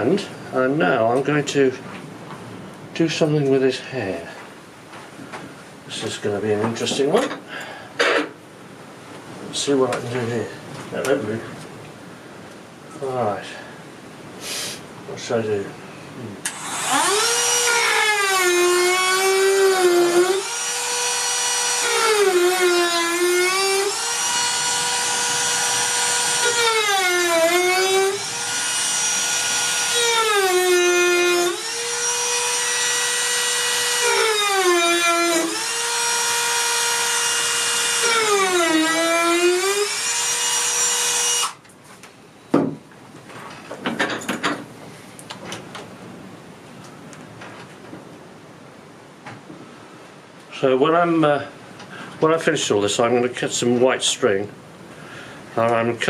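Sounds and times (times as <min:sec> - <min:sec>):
rotary tool whining: 0:16.5 - 0:41.6.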